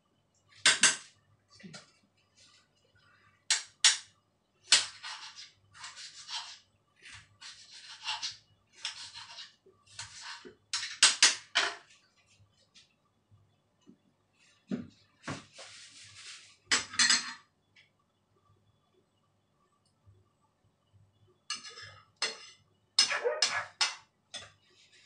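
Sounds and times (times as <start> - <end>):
knife scraping strokes: 4.8 - 6.6, 7.2 - 10.5.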